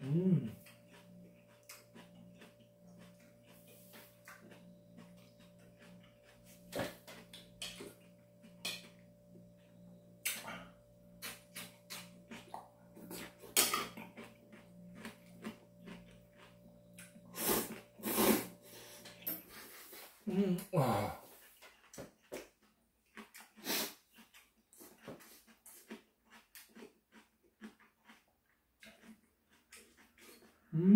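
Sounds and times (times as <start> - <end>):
faint steady hum: 0.0 - 21.3
wet chewing: 0.4 - 19.3, 21.4 - 30.7
slurping noodles: 17.3 - 20.1, 23.4 - 24.0.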